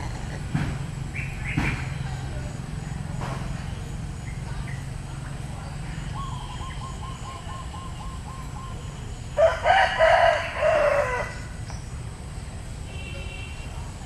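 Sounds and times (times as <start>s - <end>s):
rooster crowing: 9.4s - 11.6s.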